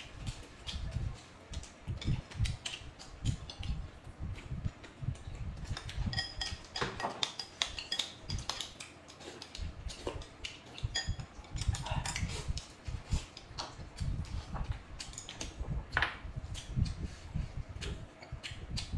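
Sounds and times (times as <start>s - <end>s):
metal spoon clinking glass bowl: 6.1s - 8.6s, 10.9s - 11.2s.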